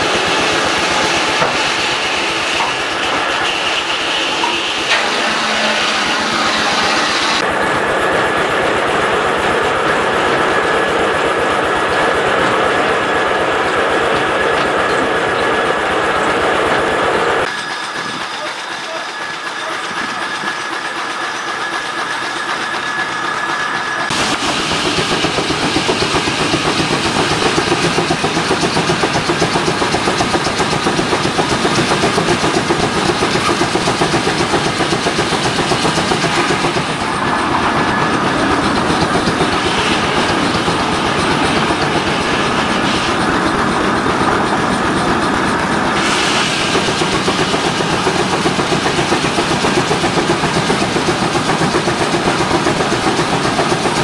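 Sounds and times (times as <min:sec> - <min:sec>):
steam engine exhaust beats: 0:00.0 - 0:54.0
steam engine thin steady tone: 0:17.4 - 0:54.0.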